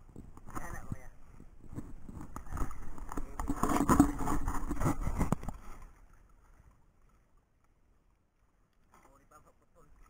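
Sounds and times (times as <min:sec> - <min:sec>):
fishing line clicking and scraping: 0:00.1 - 0:07.8.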